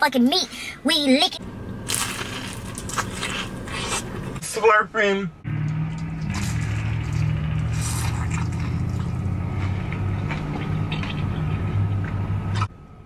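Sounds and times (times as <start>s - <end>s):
steady low hum: 0.5s - 13.0s
wet eating mouth sounds: 5.9s - 11.4s.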